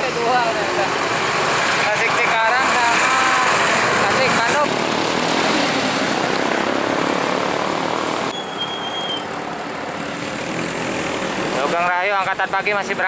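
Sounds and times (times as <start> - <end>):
buses and motorcycles passing: 0.0 - 13.0
brief high squeal: 8.3 - 9.3.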